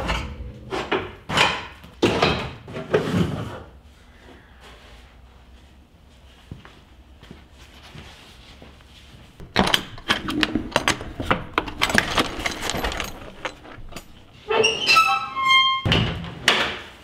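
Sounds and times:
sharp knocks and clatter: 0:09.4 - 0:14.4.

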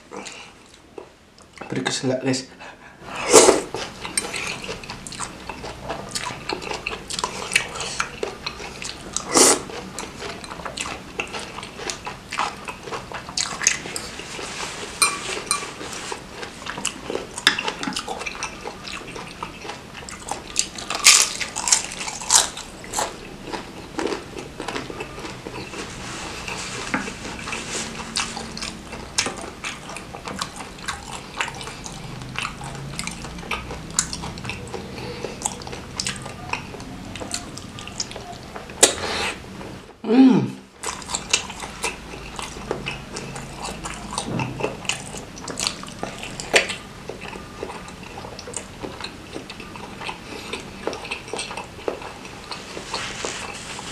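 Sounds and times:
chewing: 0:03.2 - 0:40.0, 0:40.7 - 0:53.9
slurping noodles: 0:09.2 - 0:09.8.

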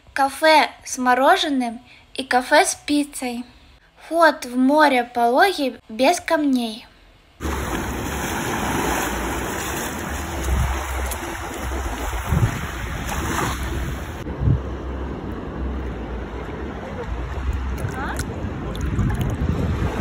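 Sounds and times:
ocean surf washing onto beach: 0:07.4 - 0:20.0
wind rumbling on microphone: 0:07.4 - 0:20.0.

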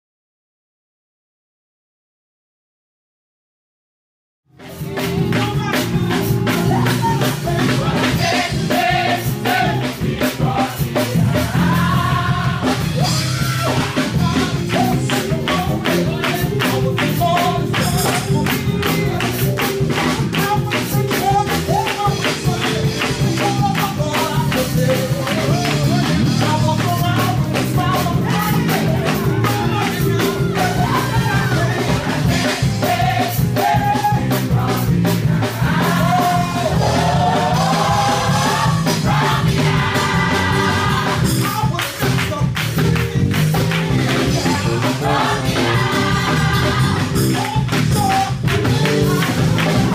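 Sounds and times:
percussion beat: 0:04.6 - 0:49.9
group singing gospel: 0:04.7 - 0:49.9
hand clapping: 0:14.7 - 0:27.7, 0:41.4 - 0:44.9, 0:47.3 - 0:49.9.

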